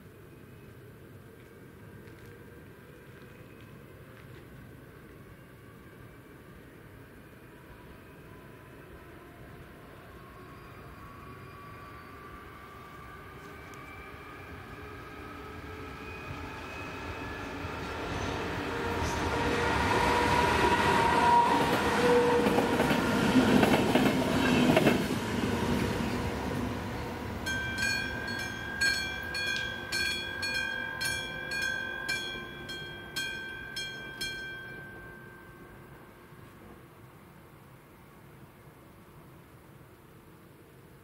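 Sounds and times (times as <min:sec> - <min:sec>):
passenger train passing: 0:00.1 - 0:41.0
crossing warning bell ringing: 0:27.4 - 0:36.4.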